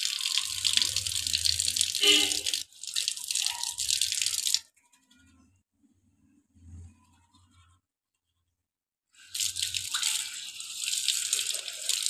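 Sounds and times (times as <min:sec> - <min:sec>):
water gushing from a tap: 0:00.0 - 0:04.7, 0:09.2 - 0:12.0.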